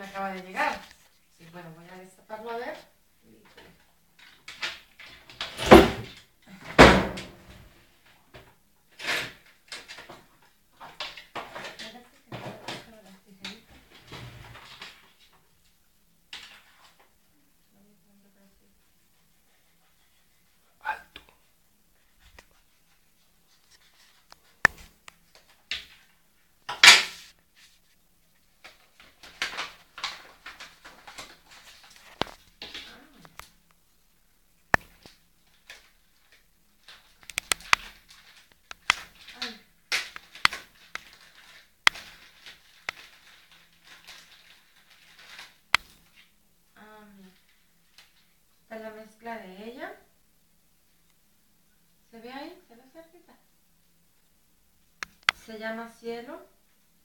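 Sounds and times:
light crinkling of packets: 0:09.4 - 0:48.7
paper envelope rustling: 0:34.9 - 0:46.3.

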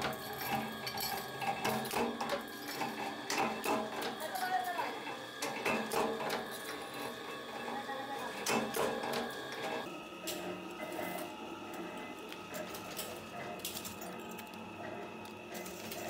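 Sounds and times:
power press stamping metal: 0:00.0 - 0:04.2, 0:05.4 - 0:06.9, 0:08.4 - 0:09.8
machine hum: 0:00.0 - 0:16.0
small metal parts clinking: 0:12.6 - 0:14.6.

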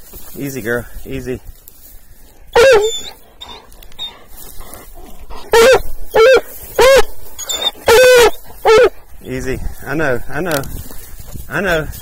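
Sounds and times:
dog whining: 0:02.6 - 0:09.0.

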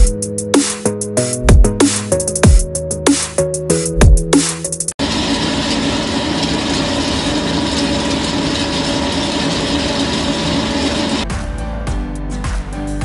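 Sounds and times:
pellet mill machine hum: 0:05.0 - 0:11.2.

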